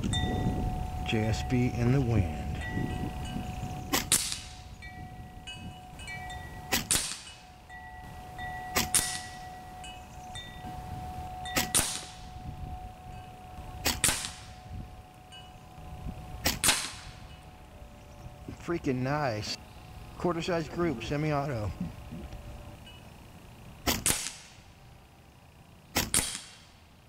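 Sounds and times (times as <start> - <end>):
air rifle shots: 3.9 - 4.6, 6.7 - 7.4, 8.8 - 9.4, 11.6 - 12.2, 13.8 - 14.6, 16.4 - 17.2, 23.8 - 24.6, 25.9 - 26.8.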